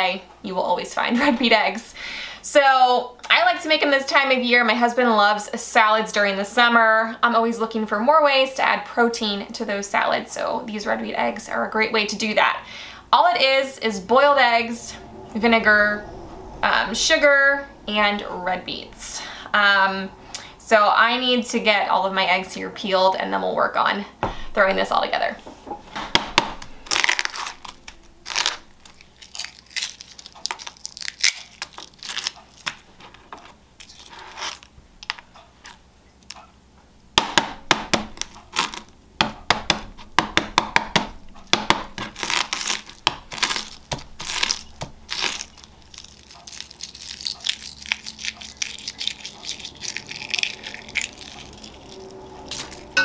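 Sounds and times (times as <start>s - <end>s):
egg shells crackling and tearing: 26.8s - 36.4s, 38.1s - 39.0s, 41.9s - 53.0s
eggs cracking on wooden board: 37.2s - 52.0s.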